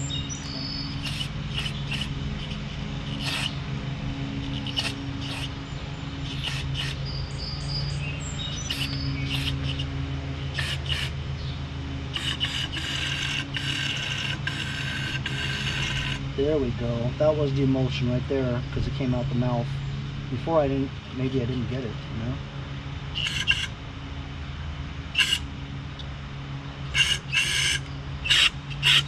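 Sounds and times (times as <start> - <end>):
steady low hum: 0.0 - 29.0
compressed air blasts hissing: 0.9 - 3.6.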